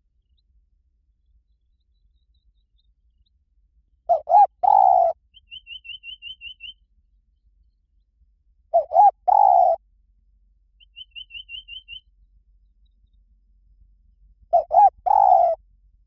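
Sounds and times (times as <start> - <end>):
dove cooing: 4.1 - 5.2, 8.8 - 9.8, 14.5 - 15.6.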